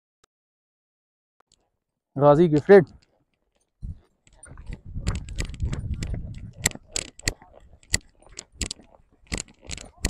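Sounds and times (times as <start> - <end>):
metal tack jingling: 2.5 - 10.0.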